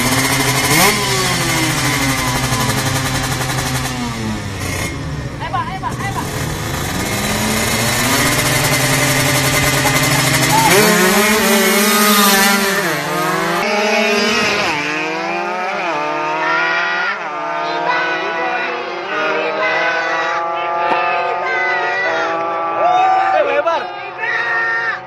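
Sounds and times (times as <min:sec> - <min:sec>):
motorcycle engine revving and accelerating: 0:00.0 - 0:22.9.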